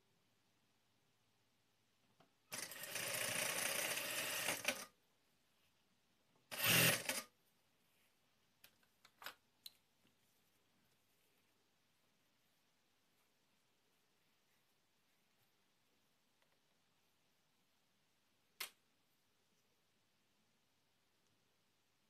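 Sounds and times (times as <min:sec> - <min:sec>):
sewing machine stitching: 0:02.5 - 0:05.0, 0:06.5 - 0:07.3.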